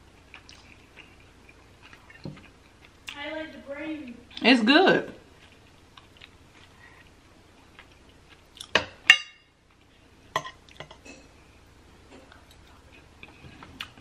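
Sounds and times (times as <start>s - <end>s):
soft chewing: 0.0s - 3.3s, 5.2s - 8.8s, 9.6s - 14.0s.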